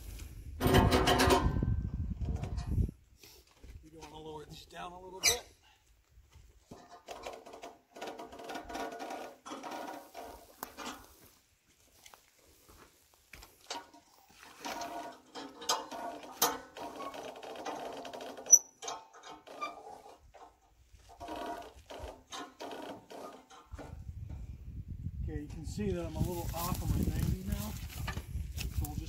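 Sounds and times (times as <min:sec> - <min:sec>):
sawmill metal squeaking and rattling: 0:05.1 - 0:05.5, 0:06.7 - 0:11.1, 0:13.7 - 0:24.0.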